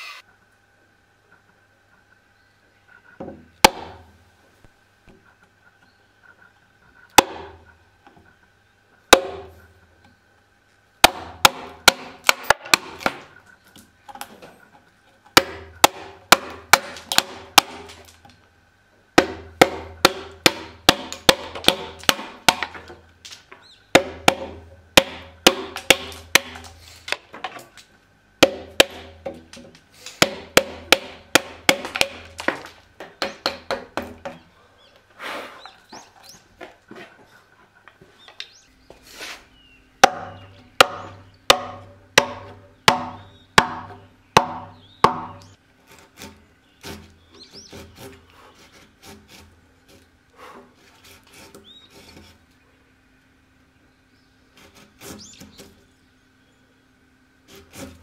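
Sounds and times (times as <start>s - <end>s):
hammer striking chisel: 19.2s - 22.9s, 24.0s - 26.8s, 28.4s - 34.4s, 40.0s - 45.5s.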